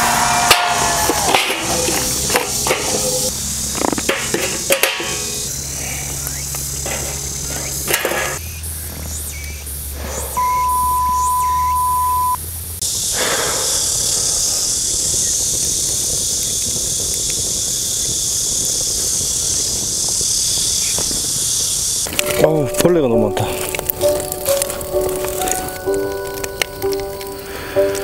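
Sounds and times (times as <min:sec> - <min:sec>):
wood fire crackling: 0:00.0 - 0:09.8, 0:12.5 - 0:28.0
low hum: 0:00.0 - 0:12.8
insects chirring: 0:00.0 - 0:28.0
electronic beep: 0:10.3 - 0:12.4.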